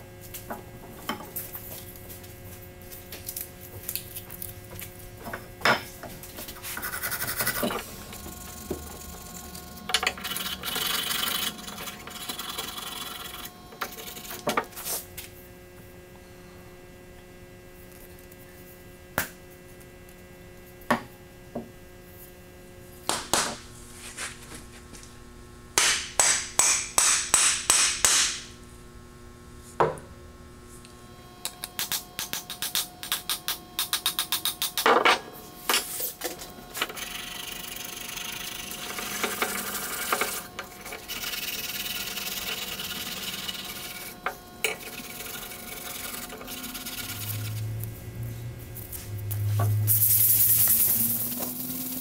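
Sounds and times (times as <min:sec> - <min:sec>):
sandpaper rubbing strokes: 0:06.6 - 0:07.6, 0:39.0 - 0:44.2, 0:44.9 - 0:47.7.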